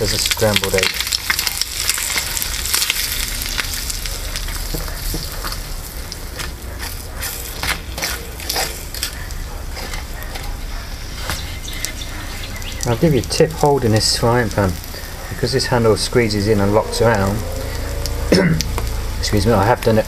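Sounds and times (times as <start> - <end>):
bacon and egg sizzling: 0.0 - 20.0
metal utensil scraping a pan: 6.3 - 11.4.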